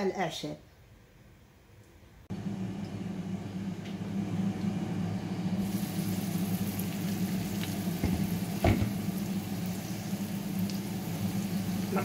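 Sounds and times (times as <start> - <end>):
vegetables sizzling in a frying pan: 2.5 - 12.0
knock: 8.0 - 8.9.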